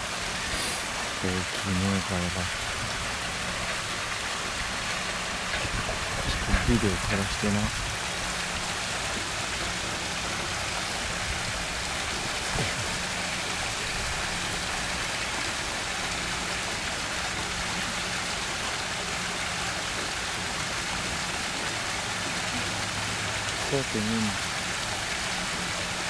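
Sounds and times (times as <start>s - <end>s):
running water: 0.0s - 26.0s.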